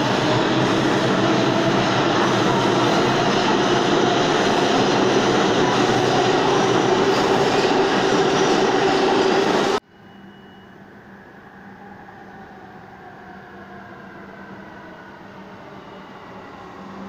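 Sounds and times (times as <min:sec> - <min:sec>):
subway train rumbling past: 0:00.0 - 0:17.0.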